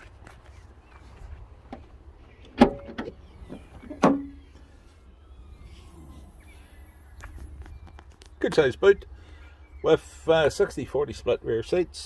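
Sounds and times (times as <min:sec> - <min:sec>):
car tailgate clunks: 0:02.5 - 0:04.4.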